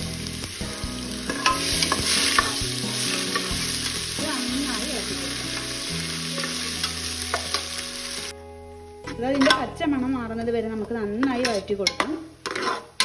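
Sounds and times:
spices sizzling in hot ghee: 0.0 - 8.3
spoon scraping and clicking on pan: 1.3 - 2.6, 11.2 - 13.0.

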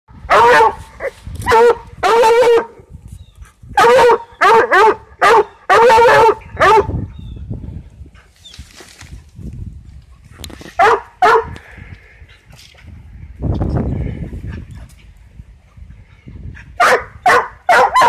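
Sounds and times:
dog baying and barking: 0.3 - 2.8, 3.8 - 6.9, 10.8 - 11.5, 16.8 - 18.0.

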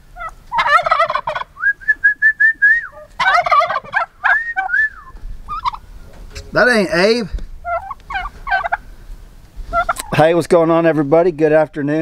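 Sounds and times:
turkeys gobbling: 0.0 - 10.3
person whistling: 1.6 - 3.0, 4.4 - 5.2.

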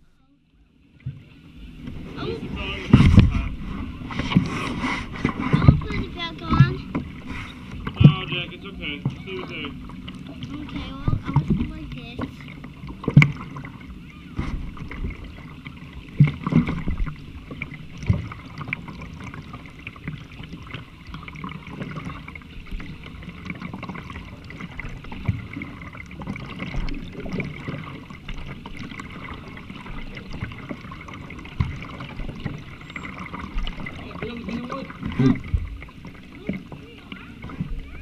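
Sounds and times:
paddle splashing water: 0.0 - 38.0.

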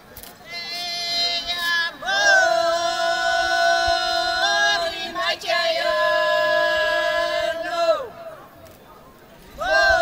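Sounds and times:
women singing a cappella: 1.0 - 8.2.

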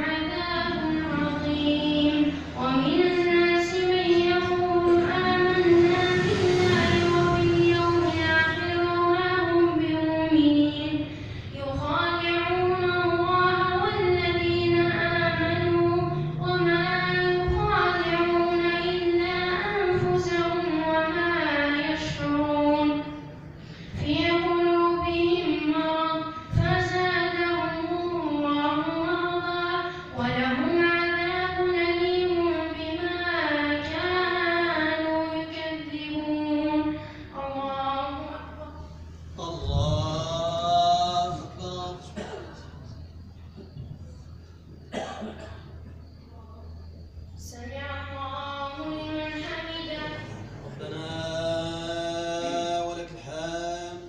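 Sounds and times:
boy chanting melodically: 0.0 - 44.0, 47.4 - 54.0
short breath: 23.5 - 24.0.

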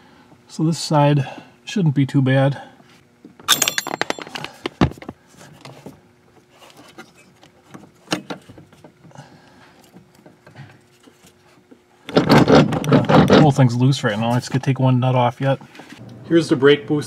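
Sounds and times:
faint steady hum: 0.0 - 17.0
clicks and knocks of metal parts: 3.4 - 5.1.

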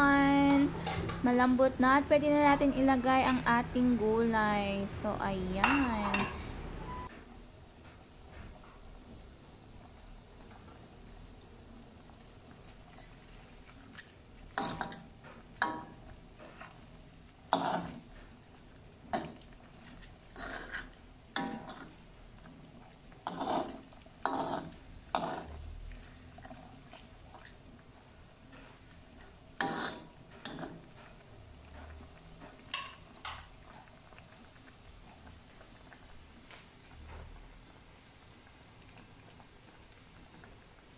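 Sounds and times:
simmering pot hiss: 0.0 - 40.9
spatula scraping a wok: 17.5 - 18.3, 19.9 - 22.0, 23.2 - 25.6, 29.6 - 31.9.

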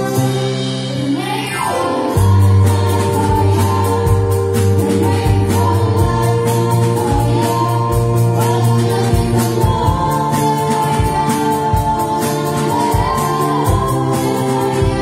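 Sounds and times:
bass guitar: 0.0 - 15.0
keyboards: 0.0 - 15.0
group singing: 1.8 - 15.0.

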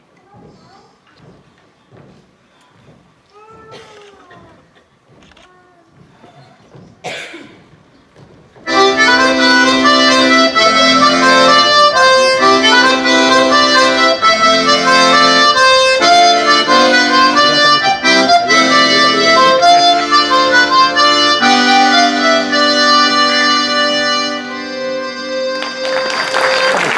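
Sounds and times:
accordion dance tune: 8.6 - 26.9.

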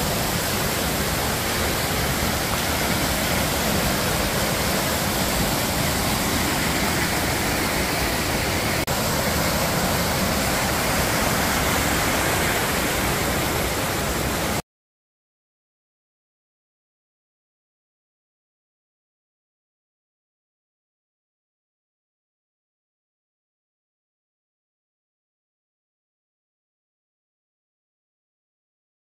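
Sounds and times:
creek rushing over boulders: 0.0 - 14.6.

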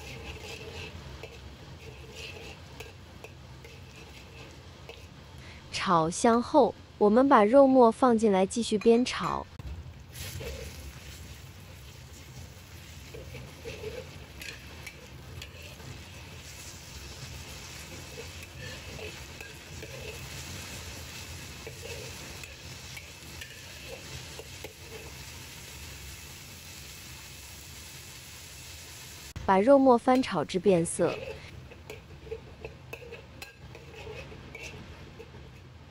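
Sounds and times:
metal spatula scraping wok: 0.0 - 5.4, 10.1 - 26.9, 30.1 - 35.9
meat sizzling in wok: 0.0 - 5.6, 10.0 - 35.9.

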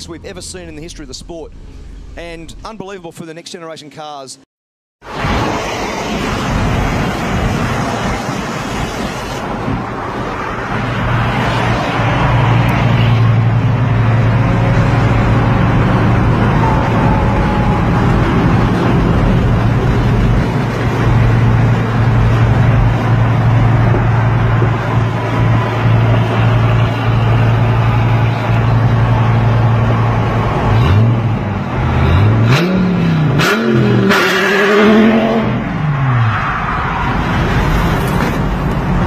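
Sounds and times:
road and engine noise in car: 0.0 - 2.7, 5.1 - 39.0
steady low drone: 12.6 - 32.5.

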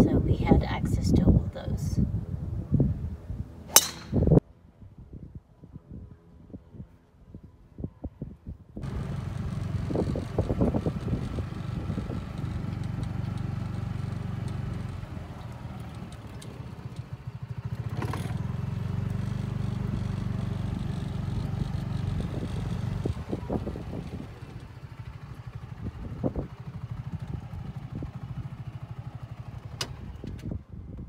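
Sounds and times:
sharp clack: 3.8 - 4.4
golf cart motor drone: 8.8 - 30.6.

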